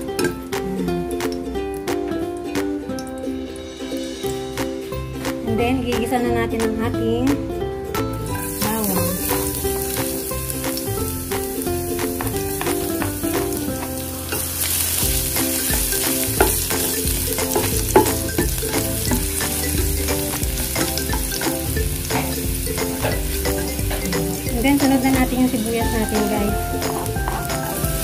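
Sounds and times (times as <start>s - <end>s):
garlic sizzling in hot oil: 8.2s - 28.0s.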